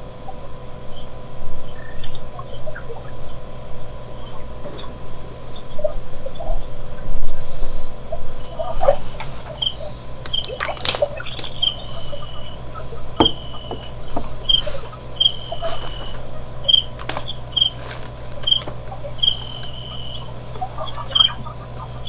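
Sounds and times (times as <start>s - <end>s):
steady low hum: 0.0s - 22.0s
sharp clicks: 10.2s - 11.8s.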